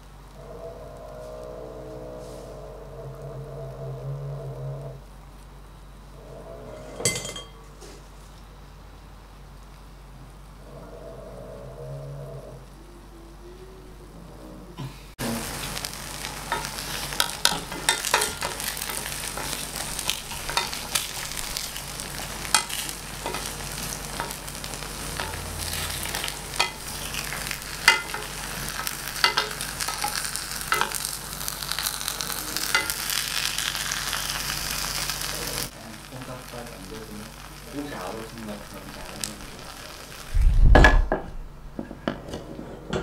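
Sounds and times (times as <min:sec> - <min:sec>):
potato sizzling in hot fat: 0:15.2 - 0:40.7.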